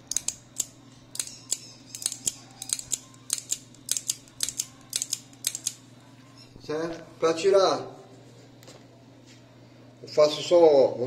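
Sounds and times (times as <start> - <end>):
revolver metal clicks: 0.0 - 5.8.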